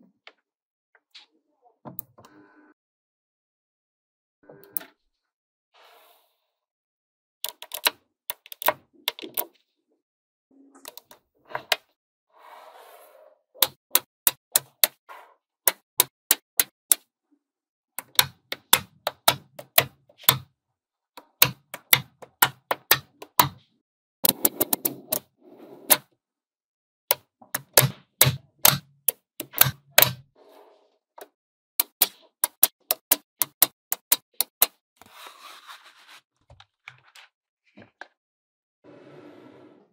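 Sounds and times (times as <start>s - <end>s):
magnetic balls clicking together: 18.0s - 20.4s, 21.2s - 23.5s, 27.1s - 30.2s, 31.8s - 34.8s.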